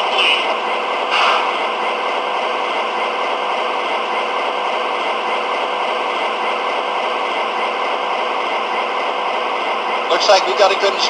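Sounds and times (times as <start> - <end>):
diesel engine idle through small speaker: 10.1 - 11.0.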